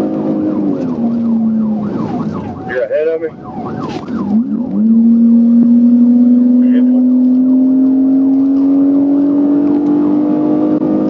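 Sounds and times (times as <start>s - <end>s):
car engine at speed: 0.0s - 11.0s
police siren yelping: 0.3s - 6.2s, 9.7s - 10.7s.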